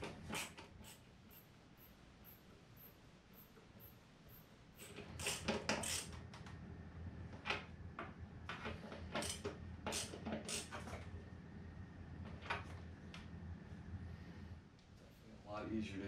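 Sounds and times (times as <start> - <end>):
screwdriver creaking screw into plastic: 4.8 - 6.2, 9.1 - 11.0.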